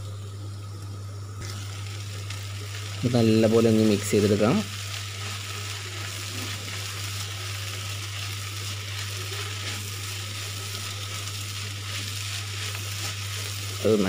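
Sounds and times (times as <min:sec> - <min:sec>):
frying sizzle: 0:00.0 - 0:14.0
low steady hum: 0:00.0 - 0:14.0
wooden spatula scraping a pan: 0:05.2 - 0:13.9.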